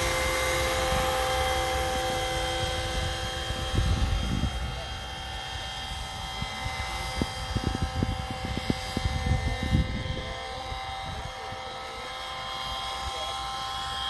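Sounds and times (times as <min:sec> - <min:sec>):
model helicopter motor whine: 0:00.0 - 0:14.0
gusty low rumble: 0:01.8 - 0:05.2, 0:05.9 - 0:11.4.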